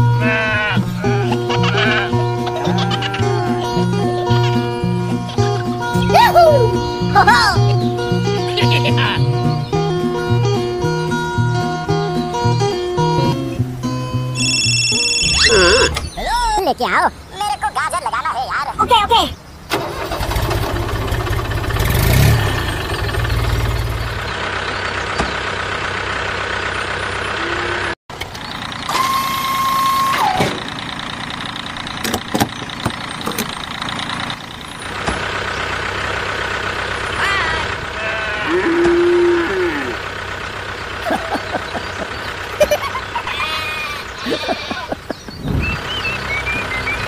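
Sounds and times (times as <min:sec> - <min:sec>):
truck engine running: 0:00.0 - 0:47.0
horn-like tone: 0:14.4 - 0:15.9.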